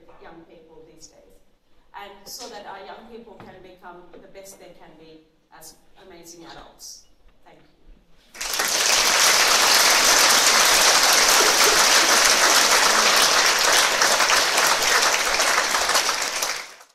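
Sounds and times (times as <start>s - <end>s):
audience applauding: 8.4s - 16.9s.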